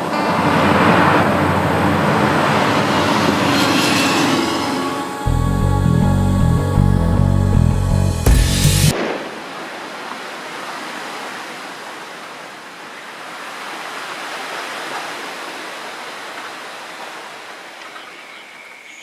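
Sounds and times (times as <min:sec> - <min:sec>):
wind through bamboo leaves: 0:08.9 - 0:19.0.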